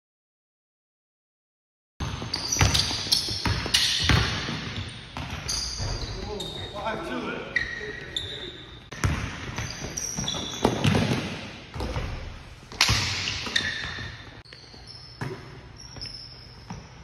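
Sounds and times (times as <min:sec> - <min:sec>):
basketball bouncing on hardwood floor: 0:02.0 - 0:06.0, 0:08.9 - 0:14.1
sneaker squeaks: 0:02.0 - 0:12.2, 0:12.8 - 0:17.0.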